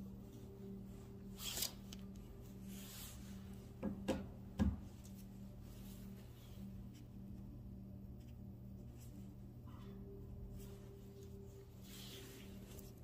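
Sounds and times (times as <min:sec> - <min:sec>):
low room hum: 0:00.0 - 0:13.0
jacket fabric rustling on microphone: 0:10.5 - 0:13.0.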